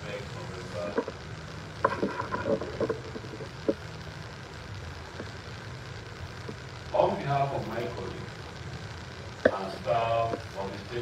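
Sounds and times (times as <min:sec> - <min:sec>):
man speaking: 0:00.0 - 0:01.1, 0:06.9 - 0:08.3, 0:09.5 - 0:11.0
steady low hum: 0:00.0 - 0:11.0.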